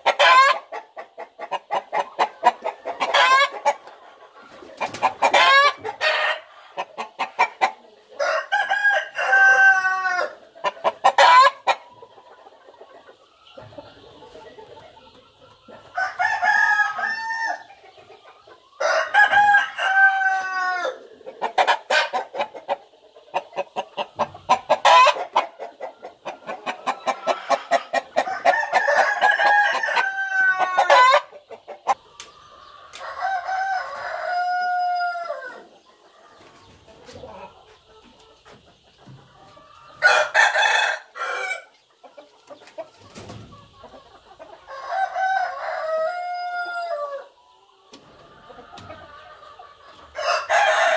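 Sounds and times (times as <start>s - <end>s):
roosters crowing: 0.0s - 0.8s, 1.7s - 3.8s, 4.9s - 11.8s, 15.9s - 17.8s, 18.8s - 22.6s, 24.0s - 25.6s, 26.3s - 32.0s, 32.6s - 36.5s, 39.5s - 41.8s, 44.6s - 47.4s, 50.1s - 50.9s.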